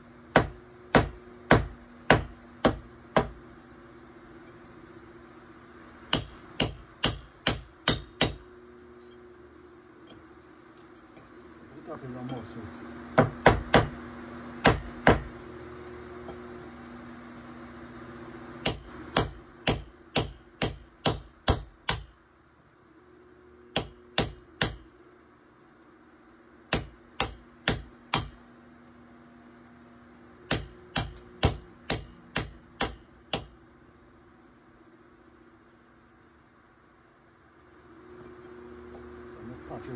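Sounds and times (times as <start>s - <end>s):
faint steady hum: 0.0s - 39.9s
hammer striking chisel: 0.3s - 3.4s, 6.1s - 8.4s, 13.2s - 14.0s, 14.6s - 15.4s, 18.6s - 22.2s, 23.7s - 24.9s, 26.7s - 28.4s, 30.5s - 33.6s.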